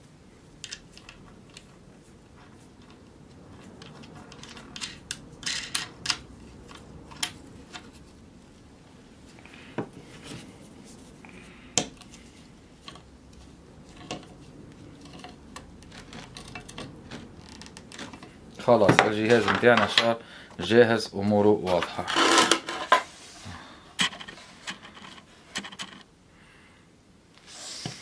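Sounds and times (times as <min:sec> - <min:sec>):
small steel parts clinking: 0:00.6 - 0:07.4, 0:14.9 - 0:18.3.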